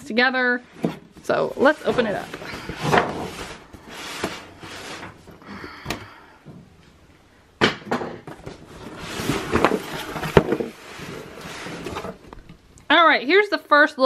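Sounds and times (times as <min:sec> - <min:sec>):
cardboard scraping: 0:00.7 - 0:05.4, 0:08.3 - 0:12.5.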